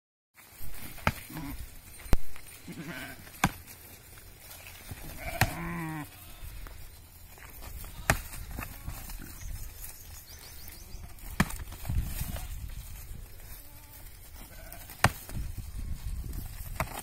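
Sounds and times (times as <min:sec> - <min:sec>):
sheep bleating: 0:01.2 - 0:01.7, 0:02.6 - 0:03.3, 0:05.0 - 0:06.7, 0:13.4 - 0:15.0.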